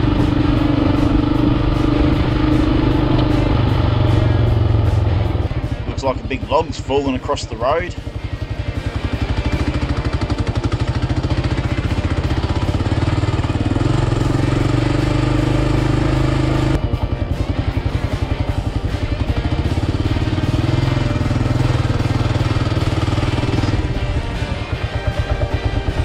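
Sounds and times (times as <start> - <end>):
motorcycle engine pulsing thump: 0.0 - 26.0.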